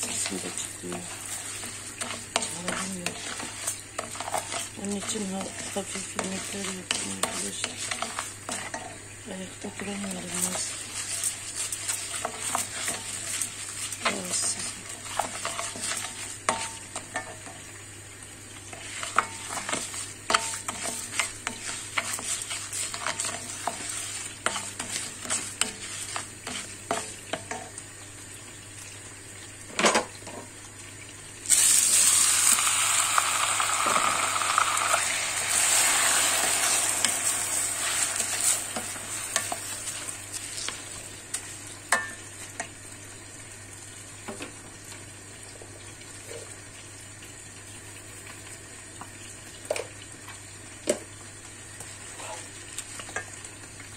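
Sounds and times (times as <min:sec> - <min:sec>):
wooden spoon scraping pot: 0:00.0 - 0:09.0, 0:52.1 - 0:52.5
rice sizzling in butter: 0:00.0 - 0:53.9.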